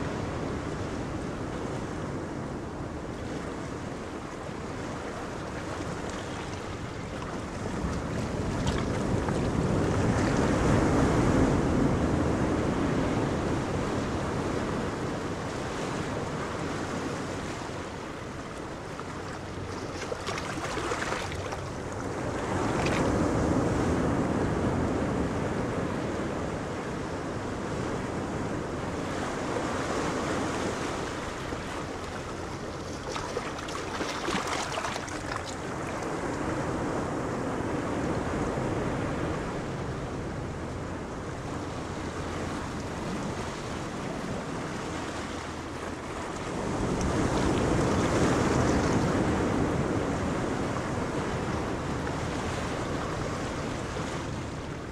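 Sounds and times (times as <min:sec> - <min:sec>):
choppy sea: 0:00.0 - 0:54.9
wind buffeting microphone: 0:00.0 - 0:54.9
boat engine running: 0:27.2 - 0:54.9.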